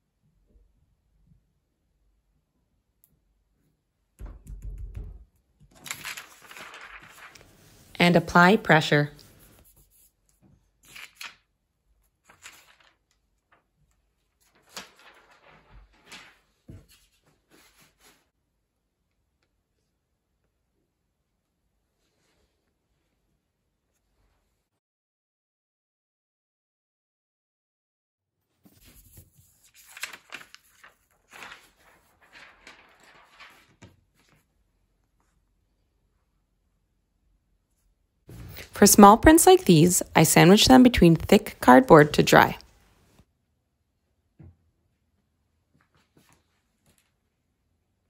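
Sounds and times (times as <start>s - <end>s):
plastic film and paper rustling: 5.7s - 8.0s, 12.2s - 18.2s, 28.8s - 34.5s.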